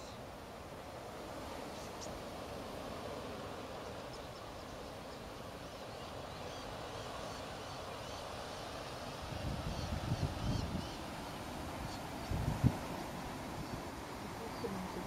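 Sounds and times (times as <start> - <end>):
starlings chirping: 3.7 - 12.4.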